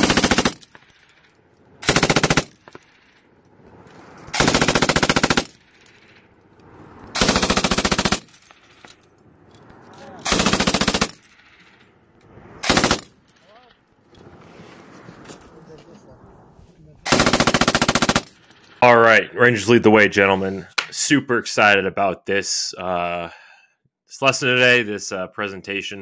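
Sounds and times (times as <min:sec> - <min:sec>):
machine gun firing bursts: 0:00.0 - 0:00.6, 0:01.8 - 0:02.6, 0:04.4 - 0:05.5, 0:07.2 - 0:08.3, 0:10.3 - 0:11.2, 0:12.6 - 0:13.1, 0:17.1 - 0:18.4.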